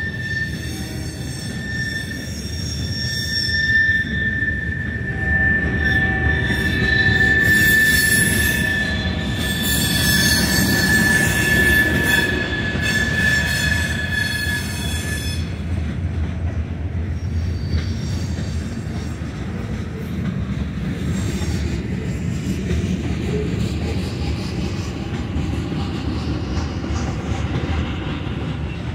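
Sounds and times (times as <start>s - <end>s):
high-pitched wheel squeal: 0.0s - 15.7s, 17.0s - 19.2s
train wheels rumbling on rail: 0.0s - 28.9s.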